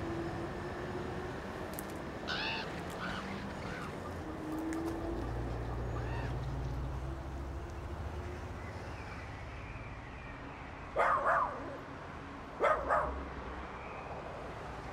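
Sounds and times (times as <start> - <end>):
dog barking: 11.0 - 11.6, 12.6 - 13.2.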